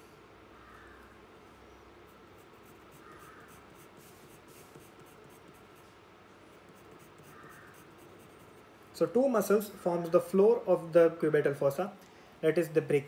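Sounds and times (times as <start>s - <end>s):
pencil scratching on paper: 2.0s - 5.8s, 6.5s - 8.6s.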